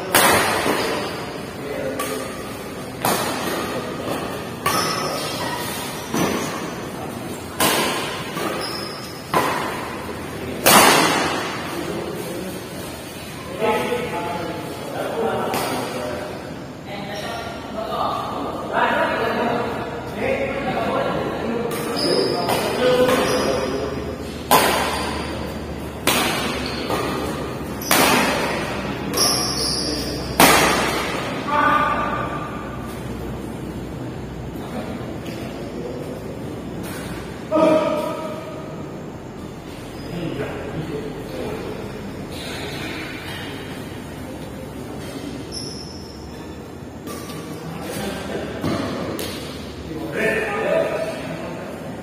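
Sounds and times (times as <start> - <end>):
racket hitting shuttlecock: 0.0 - 1.2, 1.9 - 6.8, 7.4 - 11.8, 21.6 - 33.5, 48.6 - 49.7.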